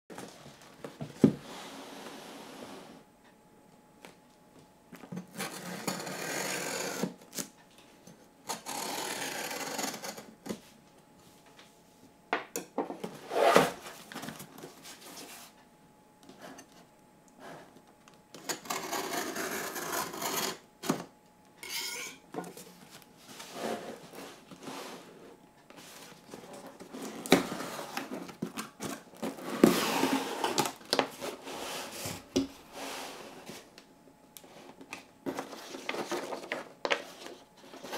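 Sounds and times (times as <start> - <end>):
cardboard scraping and rubbing: 23.4 - 25.2.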